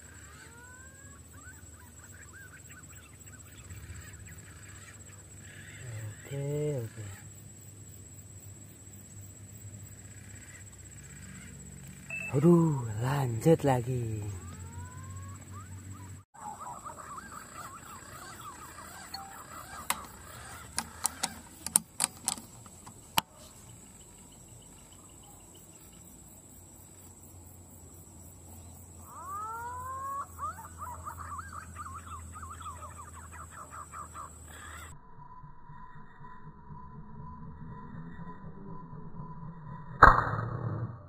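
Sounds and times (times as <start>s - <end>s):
pigeons calling with whistled notes: 14.4s - 21.6s, 29.2s - 34.9s
sharp clicks: 19.2s - 23.3s.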